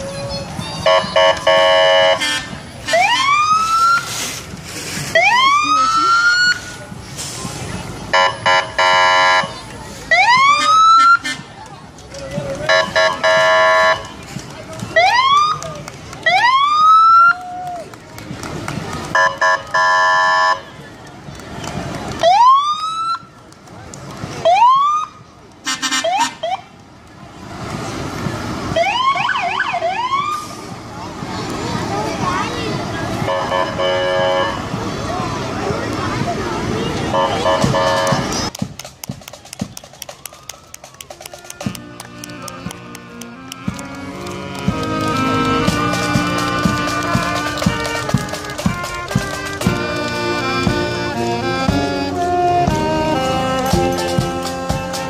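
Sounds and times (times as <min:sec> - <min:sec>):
emergency sirens whooping: 0:00.0 - 0:04.1, 0:05.1 - 0:06.8, 0:10.1 - 0:11.4, 0:14.7 - 0:20.6, 0:21.7 - 0:23.4, 0:24.4 - 0:25.3, 0:28.4 - 0:30.7, 0:39.9 - 0:55.0
emergency vehicle horn blasts: 0:00.8 - 0:03.4, 0:08.1 - 0:09.5, 0:12.7 - 0:14.1, 0:19.1 - 0:20.7, 0:25.7 - 0:26.6, 0:33.2 - 0:34.7, 0:37.1 - 0:38.3, 0:41.3 - 0:55.0
short horn blasts: 0:00.9 - 0:02.6, 0:08.1 - 0:09.5, 0:37.1 - 0:38.3.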